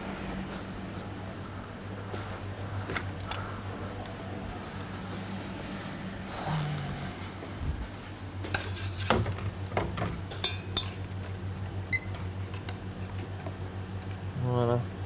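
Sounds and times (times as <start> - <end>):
low kitchen hum: 0.0 - 15.0
utensils clinking on saucepan: 10.3 - 11.0.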